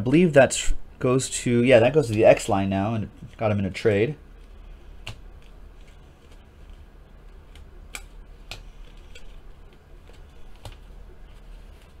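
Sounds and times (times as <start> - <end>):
low steady hum: 0.0 - 12.0
cards being shuffled by hand: 4.3 - 12.0.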